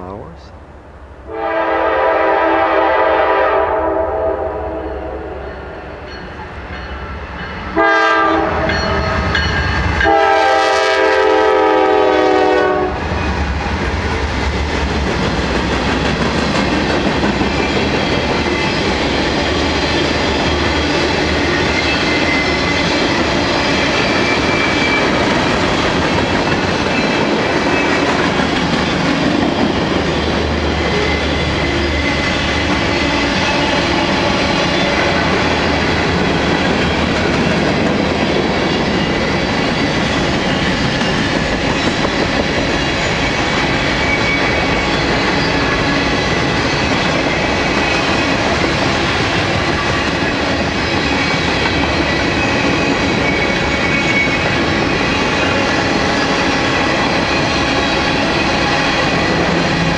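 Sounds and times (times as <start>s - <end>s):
train horn blasts: 1.3s - 6.0s, 7.8s - 9.2s, 10.0s - 13.0s.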